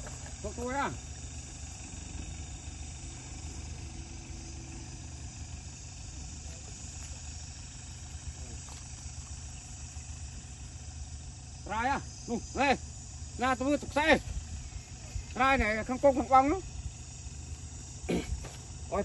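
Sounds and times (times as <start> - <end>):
engine idling hum: 0.0 - 19.0.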